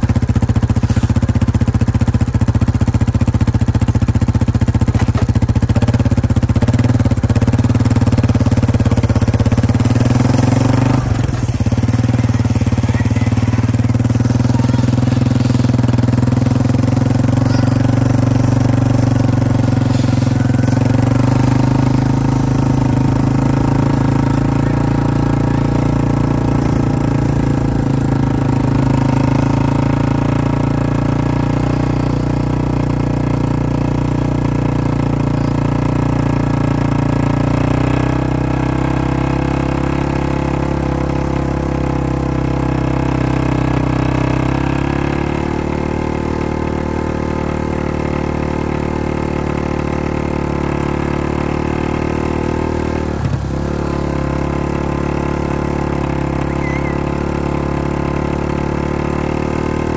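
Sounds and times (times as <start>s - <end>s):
vehicle engine running: 0.0s - 59.9s.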